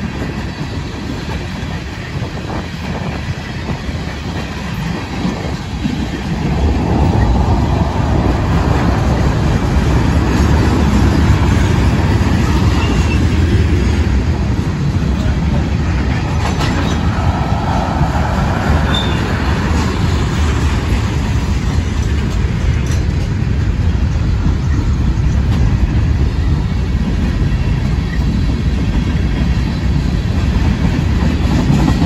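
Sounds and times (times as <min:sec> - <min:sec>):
freight train wheels rumbling on rails: 0:00.0 - 0:32.0.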